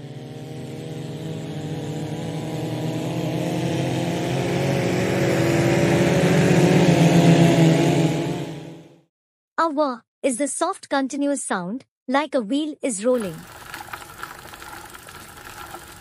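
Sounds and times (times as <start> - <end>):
vehicle engine approaching fast: 0.0 - 9.0.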